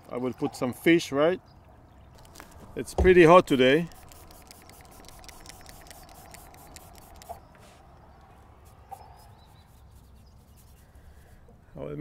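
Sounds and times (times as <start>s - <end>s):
faint outdoor hum: 0.0s - 12.0s
brush rubbing on paper: 3.2s - 7.8s, 8.6s - 11.4s.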